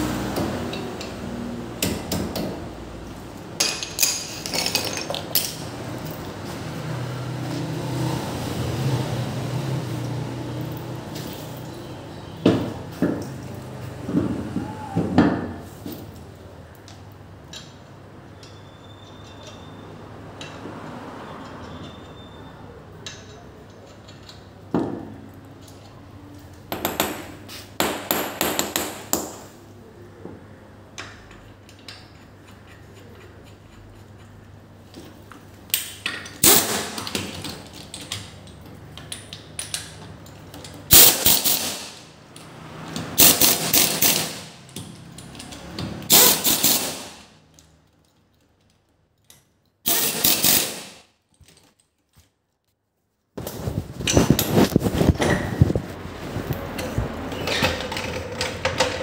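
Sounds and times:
rapid rattling tool impacts: 43.2 - 44.6.

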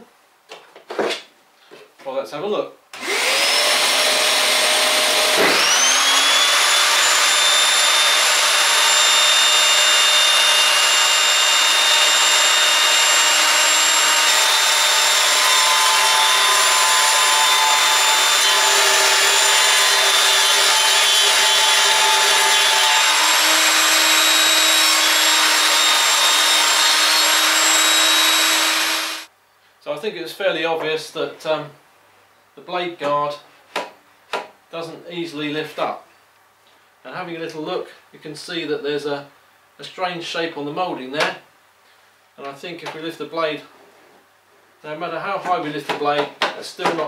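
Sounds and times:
table saw cutting wood: 3.0 - 29.3.

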